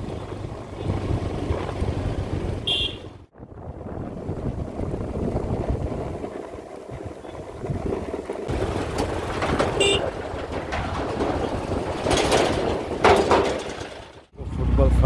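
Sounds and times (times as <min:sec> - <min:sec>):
vehicle rumble: 0:00.0 - 0:15.0
wind on microphone: 0:03.3 - 0:13.1.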